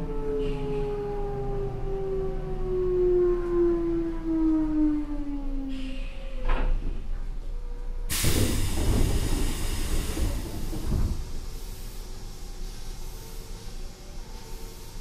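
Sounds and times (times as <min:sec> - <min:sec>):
electric train inverter whine: 0:07.5 - 0:15.0
compressed-air hiss: 0:08.1 - 0:13.8.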